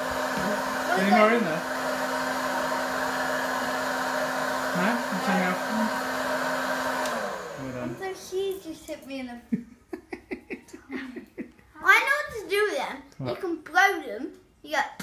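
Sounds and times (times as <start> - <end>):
popcorn popper fan whooshing: 0.0 - 8.6.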